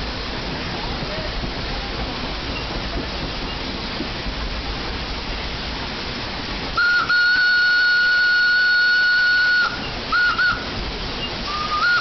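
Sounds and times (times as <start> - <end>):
steady steam hiss: 0.0 - 12.0
steam whistle toots: 6.8 - 12.0.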